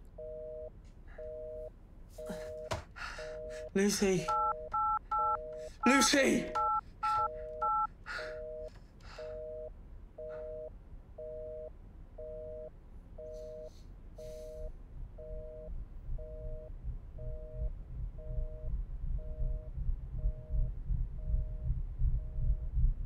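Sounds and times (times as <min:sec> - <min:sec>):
telephone busy signal: 0:03.4 - 0:13.8
telephone keypad tones: 0:03.4 - 0:13.8
low rumble: 0:14.2 - 0:23.0.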